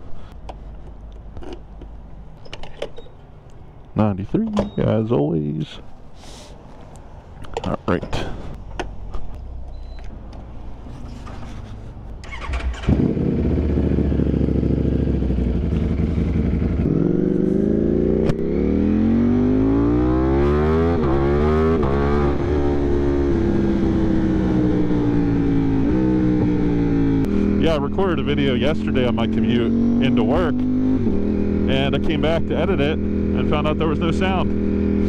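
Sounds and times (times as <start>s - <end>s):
motorcycle engine starting: 12.2s - 35.0s
motorcycle engine revving: 12.3s - 35.0s.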